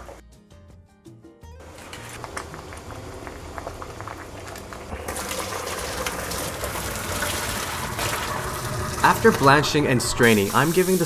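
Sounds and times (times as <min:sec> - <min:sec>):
water gushing into a sink: 0:04.9 - 0:11.0.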